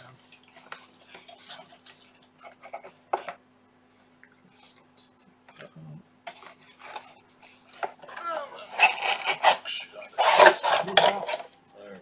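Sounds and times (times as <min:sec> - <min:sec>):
packaging rustling: 0:06.3 - 0:11.5.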